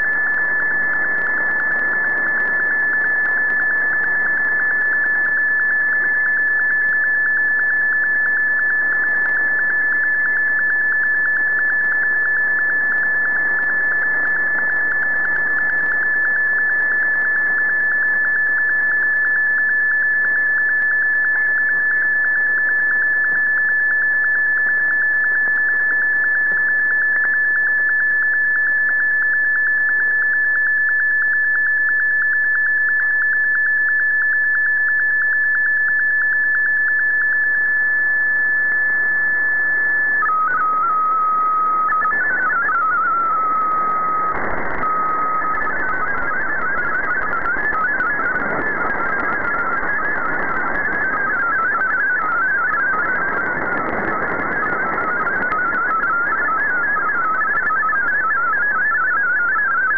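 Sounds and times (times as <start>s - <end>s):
radio static hiss: 39.4s - 59.9s.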